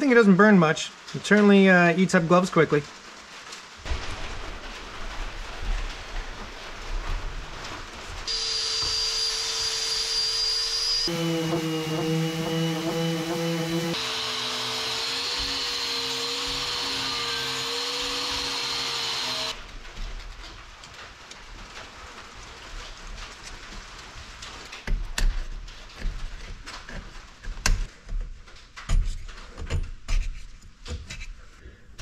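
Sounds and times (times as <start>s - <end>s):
angle grinder whining: 8.3s - 19.6s.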